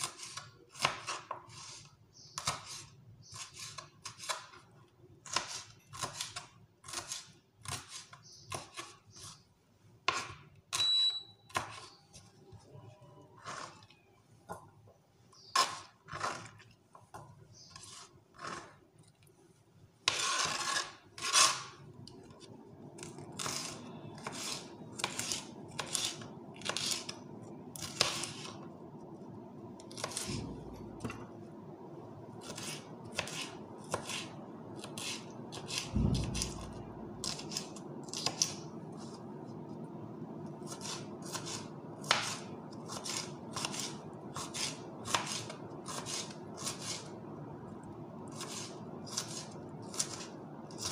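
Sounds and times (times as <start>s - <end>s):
knife chopping on plastic board: 5.2s - 9.4s, 10.0s - 10.4s, 29.9s - 31.2s, 32.4s - 38.6s.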